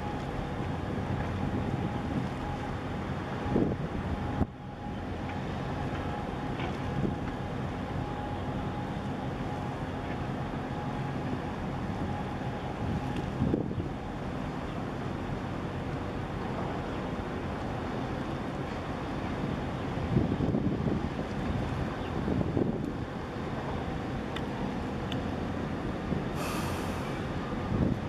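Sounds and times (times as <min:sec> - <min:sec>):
wind buffeting microphone: 0:00.0 - 0:07.8, 0:11.2 - 0:14.2, 0:18.9 - 0:26.4, 0:27.1 - 0:28.0
ship engines droning: 0:00.0 - 0:28.0.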